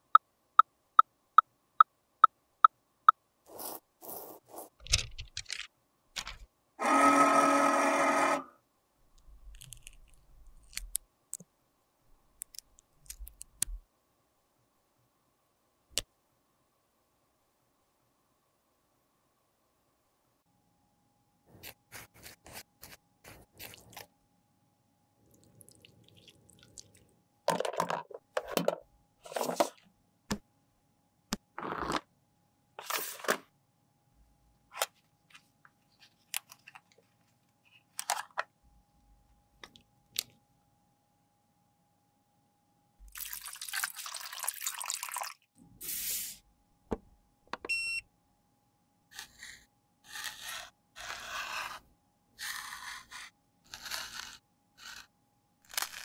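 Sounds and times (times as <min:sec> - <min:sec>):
scrapes and clicks on plastic cases: 0:27.5 - 0:29.8
metal spatula scraping powder: 0:49.1 - 0:51.8, 0:52.4 - 0:55.1.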